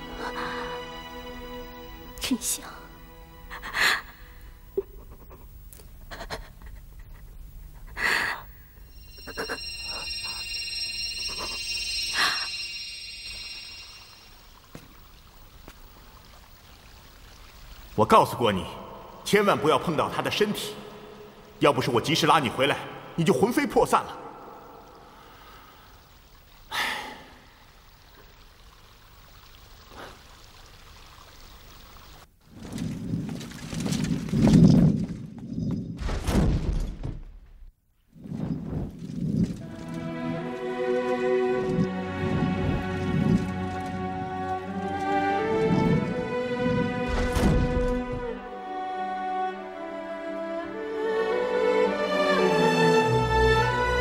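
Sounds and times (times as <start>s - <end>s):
high shimmering ringing tones: 8.7s - 15.6s
trickle of flowing water: 8.8s - 22.7s, 23.5s - 35.8s, 38.9s - 48.0s
magical whooshing burst: 8.9s - 14.7s.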